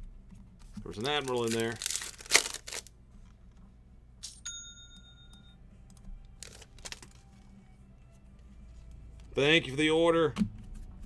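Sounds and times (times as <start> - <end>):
cards and wrappers rustling: 0.6 - 2.9, 6.3 - 7.5.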